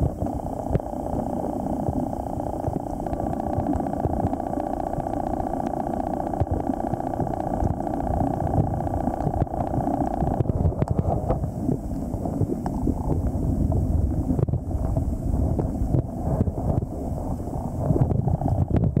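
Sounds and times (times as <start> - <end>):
low underwater rushing rumble: 0.0 - 19.0
scattered clicks: 1.9 - 11.2.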